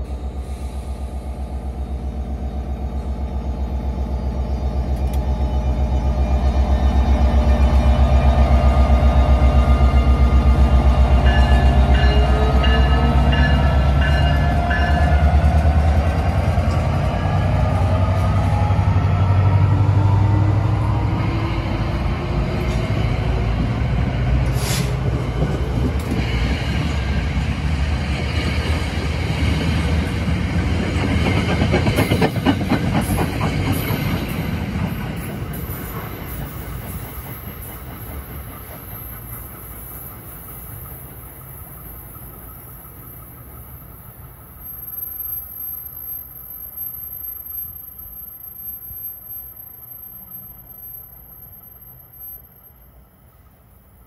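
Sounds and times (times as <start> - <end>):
train rumbling past: 0.0 - 54.0
clickety-clack over rail joints: 11.2 - 18.7, 22.3 - 43.6.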